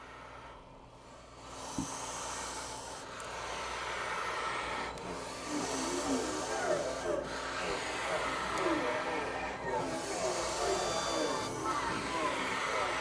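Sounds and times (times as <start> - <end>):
accordion bellows air rush: 5.1 - 13.0.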